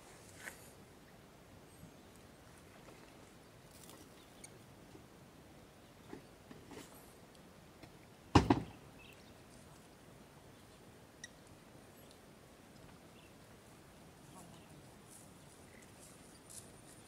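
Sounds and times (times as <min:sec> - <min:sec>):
loud thump: 0:08.3 - 0:08.7
animals grazing rustling grass: 0:14.2 - 0:17.0.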